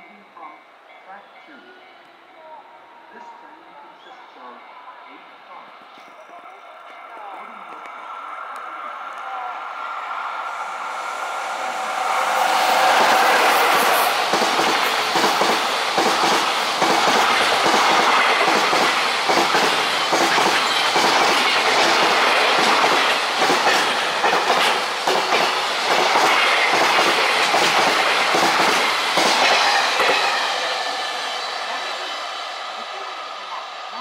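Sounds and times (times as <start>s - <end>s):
train wheels clattering over rail joints: 14.1s - 30.3s.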